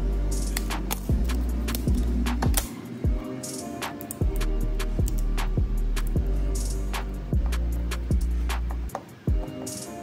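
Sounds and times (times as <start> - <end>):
electronic music with kick drum: 0.0 - 10.0.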